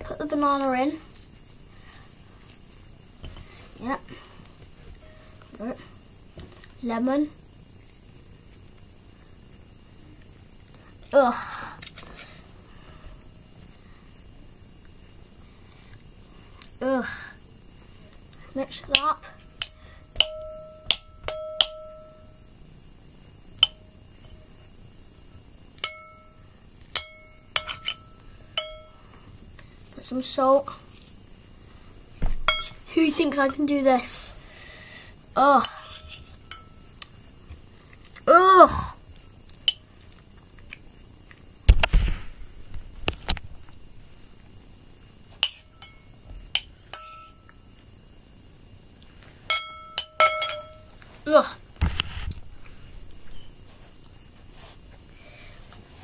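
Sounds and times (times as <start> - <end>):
metal spoon clinking on ceramic bowl: 27.0 - 28.0, 46.6 - 47.4, 49.5 - 50.8.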